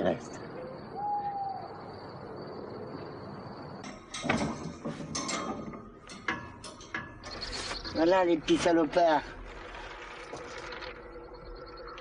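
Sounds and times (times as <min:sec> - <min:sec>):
clattering of metal gate and door: 0:03.8 - 0:10.8.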